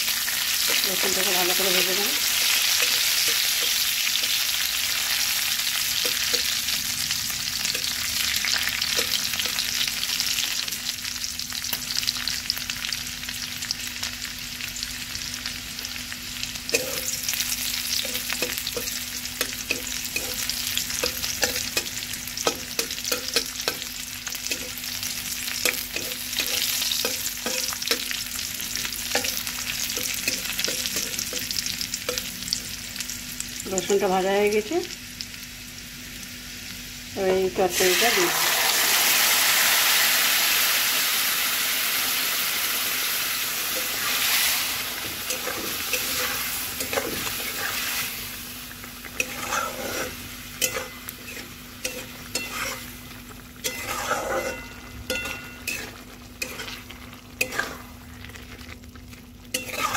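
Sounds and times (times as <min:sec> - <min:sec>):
garlic and chillies sizzling in oil: 0:00.0 - 0:59.9
metal spatula scraping a pan: 0:25.6 - 0:28.2, 0:43.8 - 0:48.1, 0:49.1 - 0:58.0, 0:59.5 - 0:59.9.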